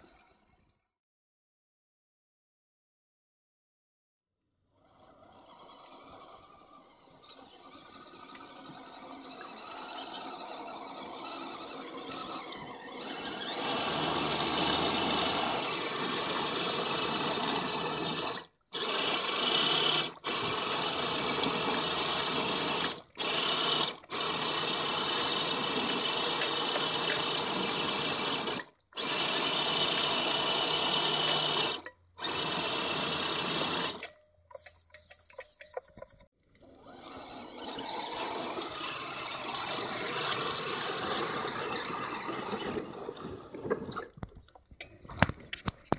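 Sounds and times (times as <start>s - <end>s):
faint motor and gear whine: 4.8s - 34.7s
tyres splashing through mud: 8.2s - 19.0s.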